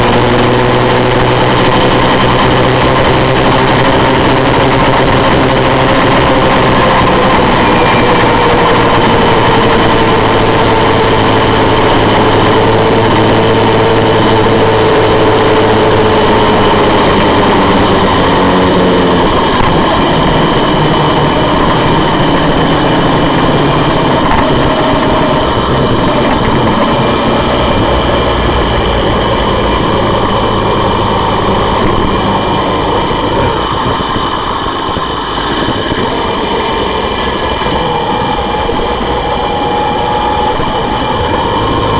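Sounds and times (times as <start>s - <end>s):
motorcycle engine running: 0.0s - 41.9s
wind and road rumble: 0.0s - 41.9s.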